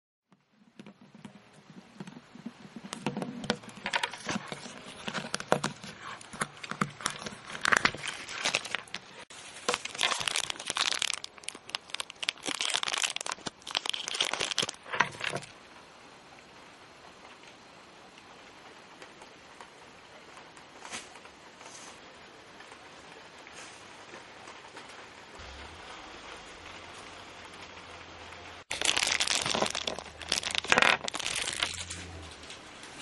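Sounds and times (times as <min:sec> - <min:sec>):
plastic wrapping crinkling: 0:00.5 - 0:15.5, 0:28.6 - 0:33.0.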